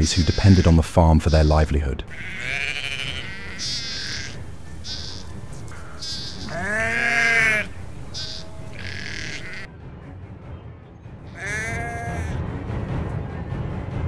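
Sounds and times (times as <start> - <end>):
sheep bleating: 0.0 - 9.7, 11.3 - 12.4.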